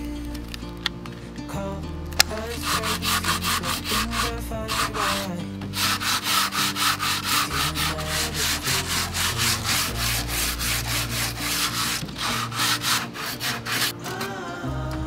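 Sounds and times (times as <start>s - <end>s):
sanding sponge rubbing wood: 2.6s - 14.0s.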